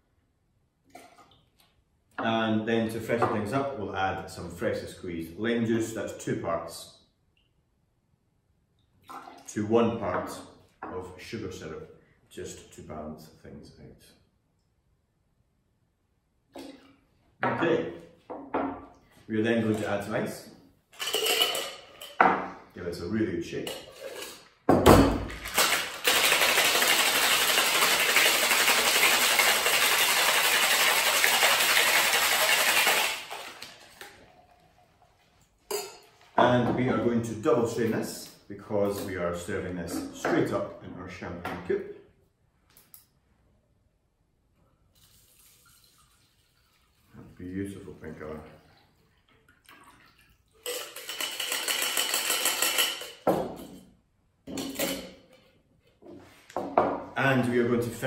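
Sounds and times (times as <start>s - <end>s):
ice rattling in cocktail shaker: 21.0s - 22.2s, 25.3s - 34.5s, 50.5s - 53.3s.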